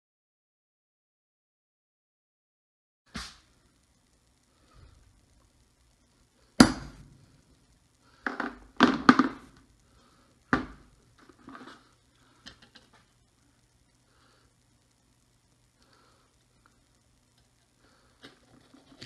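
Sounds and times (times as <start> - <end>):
hammer striking wooden block: 6.6 - 7.0.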